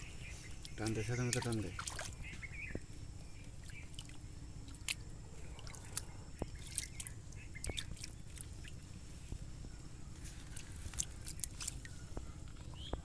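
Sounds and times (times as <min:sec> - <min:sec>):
hands splashing in muddy water: 0:00.7 - 0:02.2, 0:05.6 - 0:08.9, 0:10.4 - 0:12.0.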